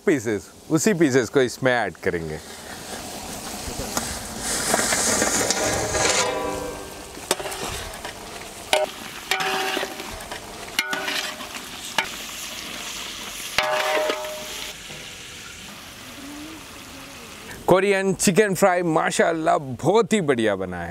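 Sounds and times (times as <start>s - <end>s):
low sizzle: 0.0s - 19.6s
spatula stirring in sauce: 7.2s - 12.8s.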